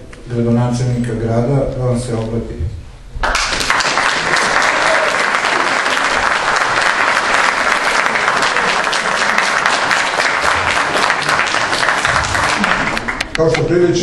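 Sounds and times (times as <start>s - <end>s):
audience applauding: 3.2s - 13.6s.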